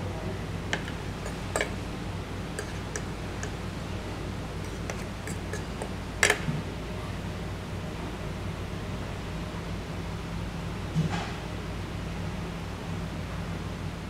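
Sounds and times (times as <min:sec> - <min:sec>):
steady low hum: 0:00.0 - 0:14.0
cutlery clinking on a plate: 0:00.8 - 0:01.8, 0:02.6 - 0:03.6, 0:04.6 - 0:06.5.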